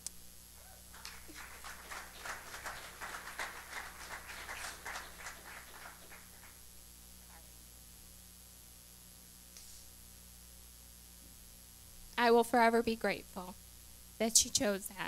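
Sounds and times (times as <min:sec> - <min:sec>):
faint scattered applause: 0:00.6 - 0:06.7.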